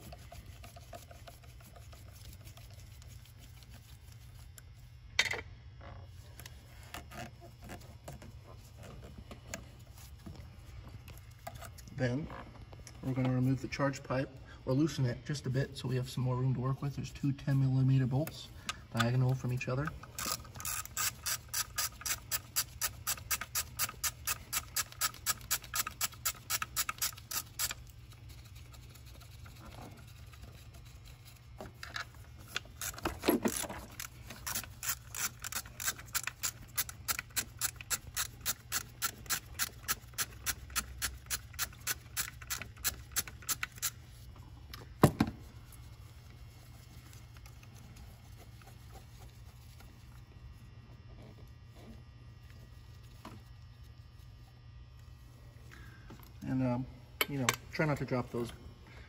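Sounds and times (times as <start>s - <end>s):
ratchet wrench clicking: 20.0s - 27.8s, 32.5s - 44.0s.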